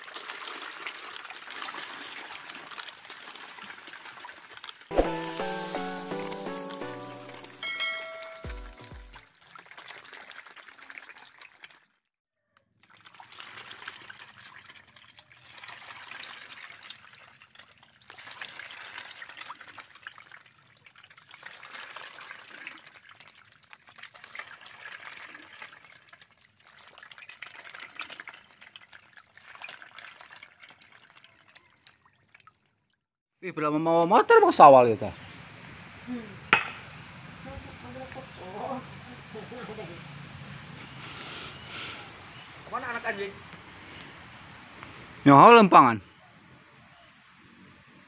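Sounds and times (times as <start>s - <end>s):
fish splashing in water: 0.0s - 5.2s, 8.6s - 12.0s, 12.7s - 33.0s
short musical jingle: 4.9s - 9.2s.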